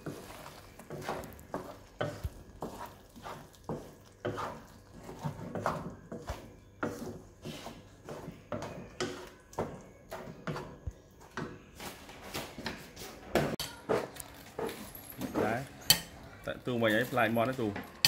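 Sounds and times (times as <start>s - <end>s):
wooden spatula scraping wok: 0.0s - 16.0s.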